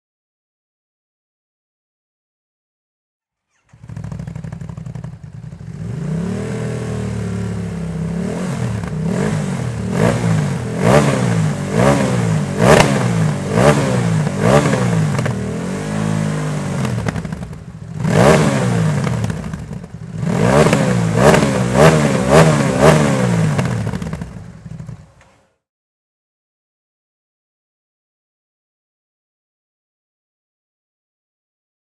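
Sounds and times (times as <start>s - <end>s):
motorcycle engine revving: 3.4s - 25.6s.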